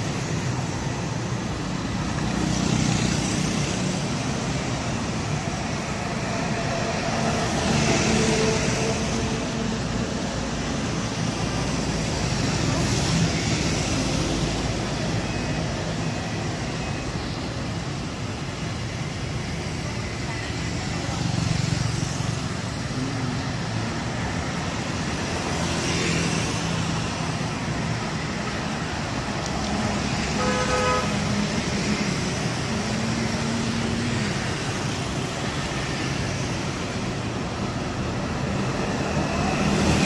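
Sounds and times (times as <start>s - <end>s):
cars and scooters driving past: 0.0s - 40.0s
vehicle horn honk: 30.4s - 31.1s.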